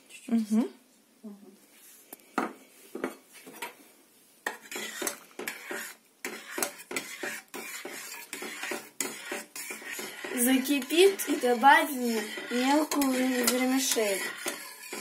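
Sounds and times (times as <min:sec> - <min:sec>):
metal spoon stirring in pot: 0:04.4 - 0:15.0.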